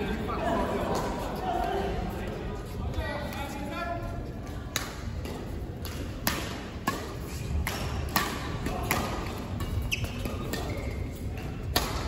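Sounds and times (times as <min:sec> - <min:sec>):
rackets hitting shuttlecock: 0:04.7 - 0:12.0.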